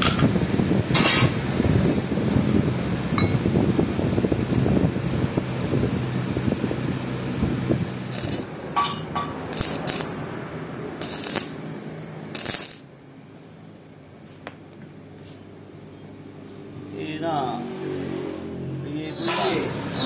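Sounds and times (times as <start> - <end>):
small iron parts clinking: 0.0 - 0.4, 7.9 - 10.1, 19.1 - 20.0
arc welding bursts: 7.8 - 8.6, 9.5 - 10.2, 11.0 - 11.6, 12.3 - 12.9.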